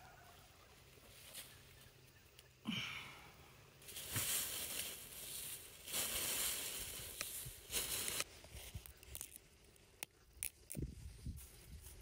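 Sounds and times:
twigs rustling and crackling: 3.8 - 12.0.

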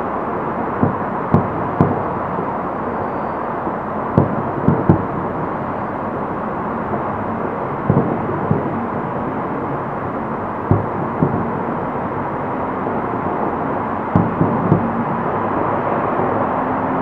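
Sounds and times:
steady background noise: 0.0 - 17.0
distant fireworks booming: 0.7 - 3.5, 4.1 - 5.9, 7.8 - 16.2.

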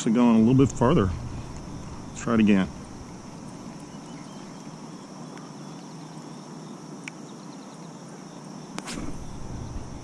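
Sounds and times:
steady high hiss: 0.0 - 10.0
faint bird chirps: 2.8 - 10.0.

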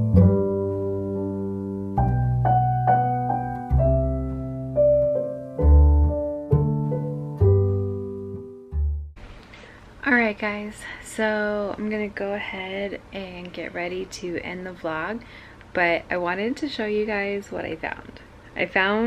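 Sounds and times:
slow piano chords: 0.0 - 9.0.

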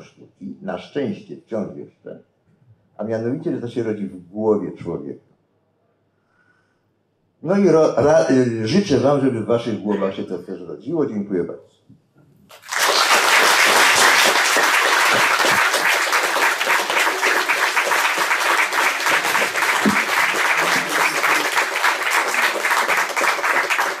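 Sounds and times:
audience applauding: 12.5 - 24.0.

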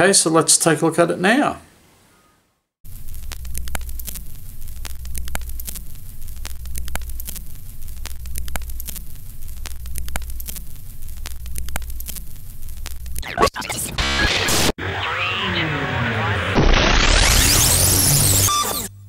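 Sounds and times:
film crackle and clicks: 2.9 - 13.4.

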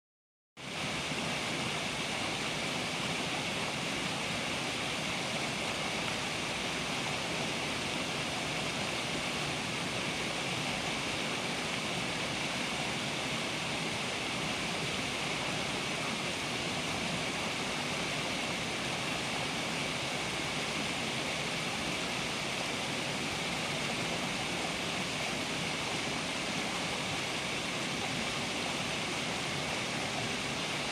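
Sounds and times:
small waterfall pouring over rocks: 0.6 - 30.9.

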